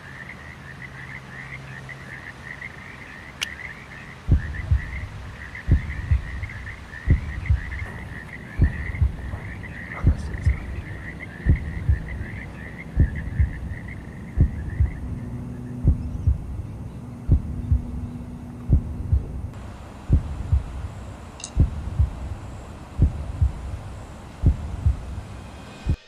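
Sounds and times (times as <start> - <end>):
high rapid chirping calls: 0.0 - 26.0
low hum: 0.8 - 26.0
low double thump: 5.7 - 12.2, 13.0 - 13.7, 14.4 - 15.2, 17.3 - 18.0, 18.6 - 20.9, 21.6 - 22.3, 23.0 - 23.8, 24.4 - 25.2.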